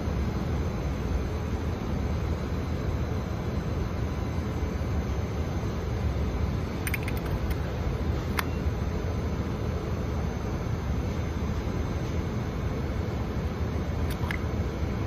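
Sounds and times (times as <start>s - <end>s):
low outdoor rumble: 0.0s - 15.0s
metal gas cap clicking: 6.8s - 7.6s.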